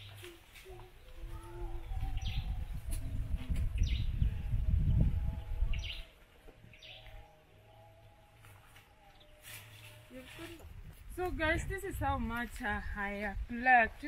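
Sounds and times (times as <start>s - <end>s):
birds chirping: 0.0s - 10.8s.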